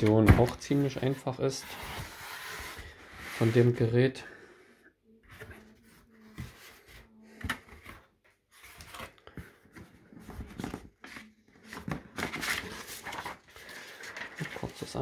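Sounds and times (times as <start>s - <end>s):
cardboard and paper rustling: 5.3s - 15.0s.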